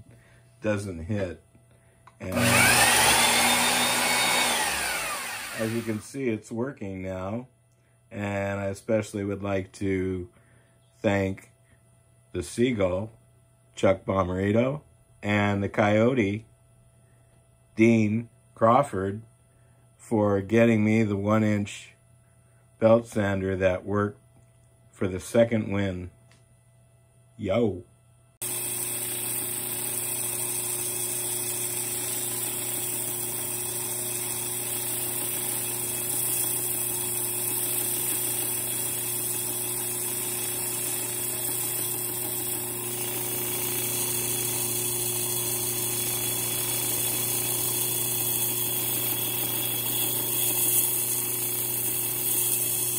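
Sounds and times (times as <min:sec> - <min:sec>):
band saw running: 0:02.2 - 0:06.2, 0:28.4 - 0:52.9.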